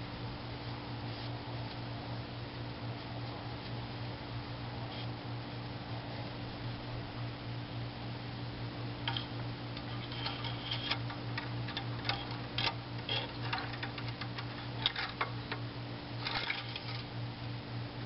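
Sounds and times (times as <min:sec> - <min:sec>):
steady low hum: 0:00.0 - 0:18.0
dipstick clicks and scrapes: 0:09.1 - 0:15.6, 0:16.2 - 0:17.1.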